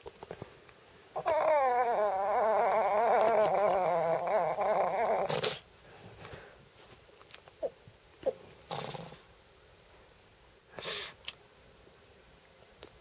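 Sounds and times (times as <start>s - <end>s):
dog whining warble: 1.2s - 5.6s.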